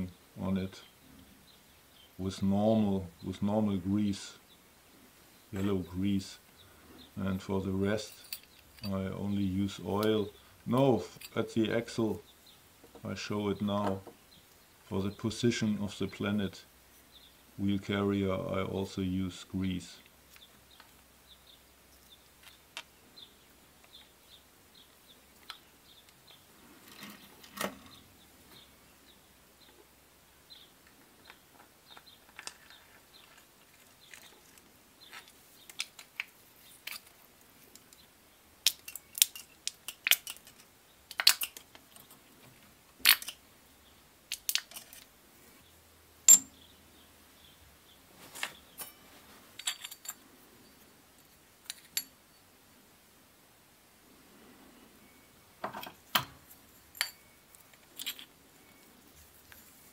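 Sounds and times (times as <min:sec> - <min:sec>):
small steel parts clicking: 0:08.0 - 0:09.0, 0:35.1 - 0:38.0, 0:38.6 - 0:42.2, 0:43.0 - 0:43.4, 0:44.3 - 0:45.1, 0:49.6 - 0:50.2, 0:56.1 - 0:58.4.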